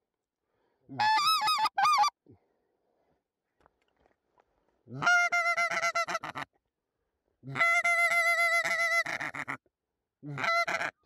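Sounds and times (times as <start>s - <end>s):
goose call honks: 10.3s - 11.0s.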